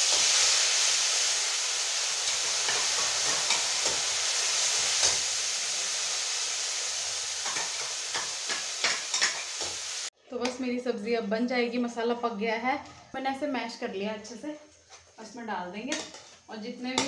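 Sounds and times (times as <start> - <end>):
puree sizzling in hot oil: 0.0 - 10.2.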